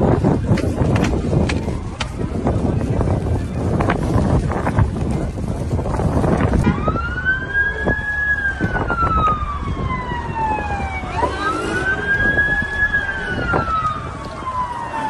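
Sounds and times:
emergency vehicle siren wailing: 0.0s - 4.7s, 6.2s - 15.0s.

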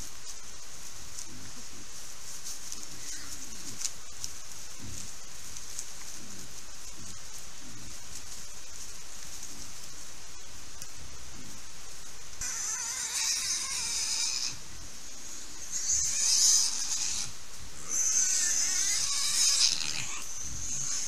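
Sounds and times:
piglets squealing: 12.4s - 14.6s, 15.6s - 21.0s.

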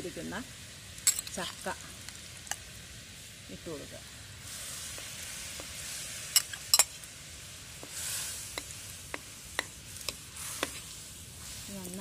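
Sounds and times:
steady sizzle: 0.0s - 12.0s
syrup bubbling: 4.2s - 12.0s.

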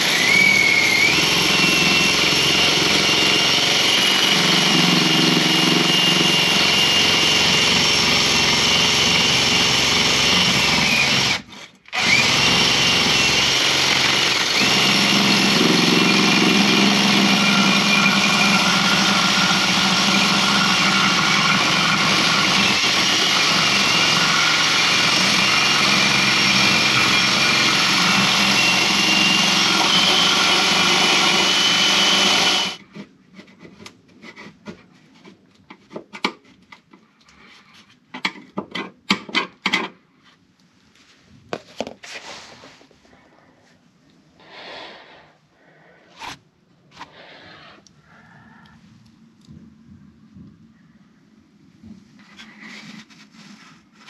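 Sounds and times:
power tool running: 0.0s - 32.8s.

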